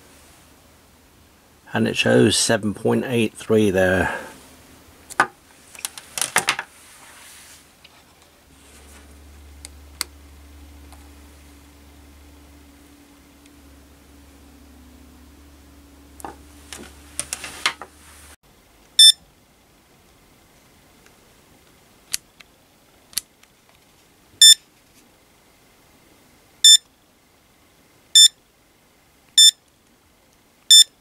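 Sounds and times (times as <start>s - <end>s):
handling rustle and knocks: 5.1s - 9.7s, 16.2s - 18.4s
multimeter short high beeps: 19.0s - 19.2s, 26.6s - 26.8s, 28.2s - 28.4s, 29.4s - 29.6s, 30.7s - 31.0s.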